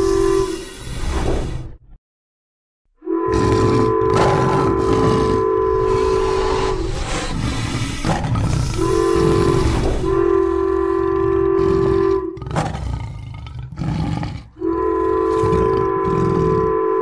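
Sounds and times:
train horn blasts: 0.0 - 0.8, 3.0 - 7.1, 8.8 - 12.4, 14.6 - 17.0
tiger roar: 3.3 - 16.9.

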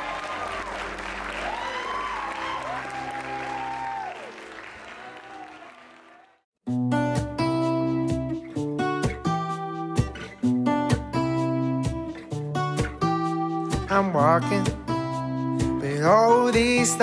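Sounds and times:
congregation applauding: 0.0 - 6.4
recessional music: 0.0 - 17.0
acoustic guitar strumming: 6.7 - 17.0.

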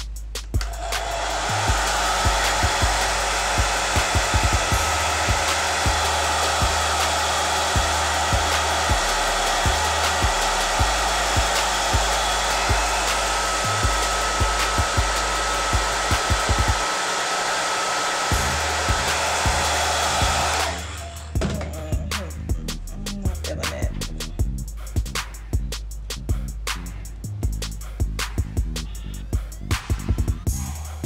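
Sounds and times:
hair dryer blowing: 0.5 - 21.7.

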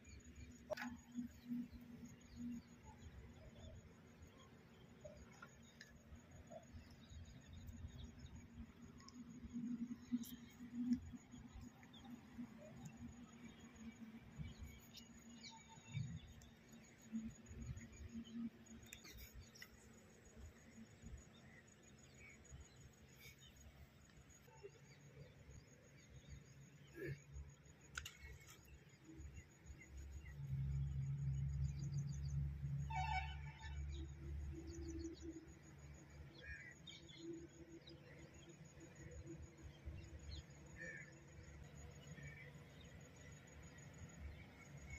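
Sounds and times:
soft clicks: 27.9 - 28.7.

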